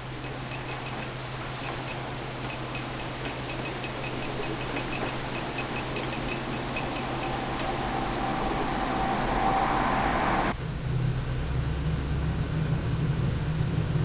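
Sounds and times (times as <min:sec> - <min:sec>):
boat diesel engine humming: 0:00.0 - 0:10.6
rushing noise with faint tone: 0:00.0 - 0:14.0.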